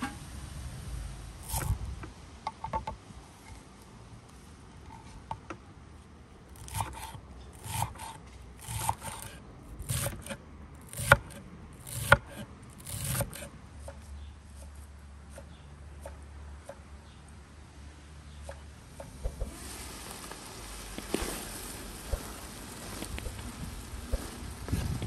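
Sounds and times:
knife slicing herbs: 1.4 - 1.8, 6.6 - 16.2.

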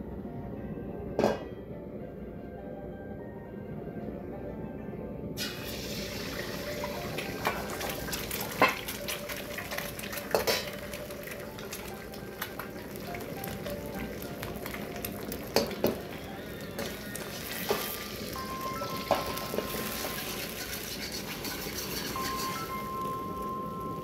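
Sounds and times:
eggs sizzling in oil: 5.4 - 24.0.

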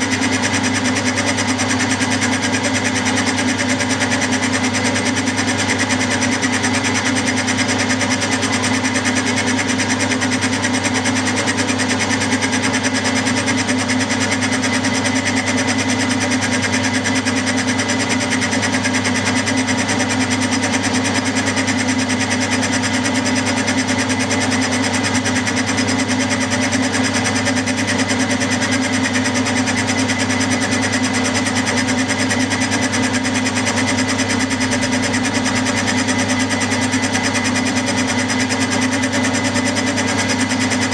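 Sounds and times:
milling machine cutting metal: 0.0 - 40.9.

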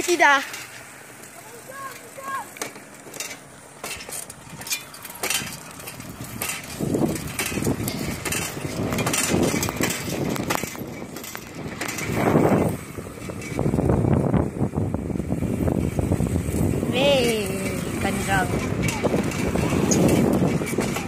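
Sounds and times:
bicycle clicking and rattling: 0.0 - 21.0
wind buffeting microphone: 4.3 - 21.0.

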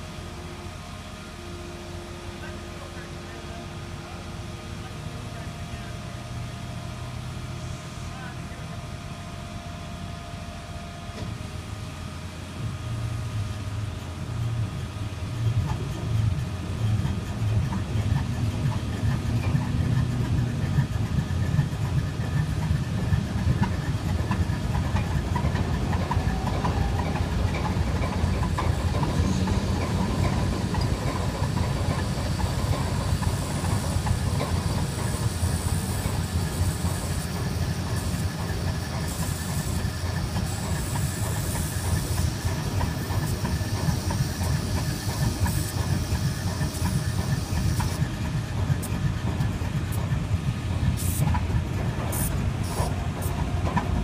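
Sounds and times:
diesel locomotive engine starting: 0.0 - 54.0.

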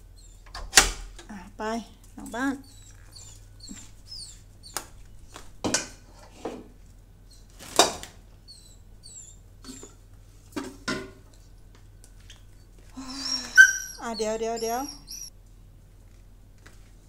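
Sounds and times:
small dogs whimpering: 2.3 - 4.7, 8.4 - 10.0, 13.0 - 15.3.

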